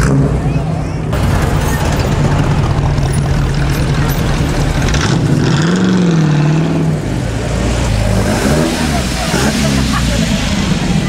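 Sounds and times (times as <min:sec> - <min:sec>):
sports car engine idling: 0:01.2 - 0:05.4.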